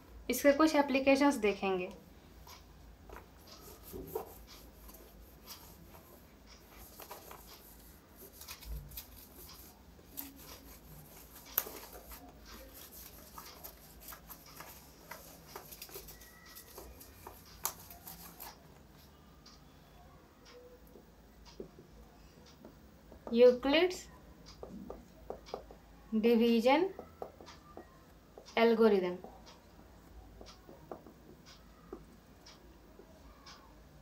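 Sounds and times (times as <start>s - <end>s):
whiteboard squeaking: 3.4s - 7.9s
cloth rubbing on whiteboard: 3.4s - 18.5s.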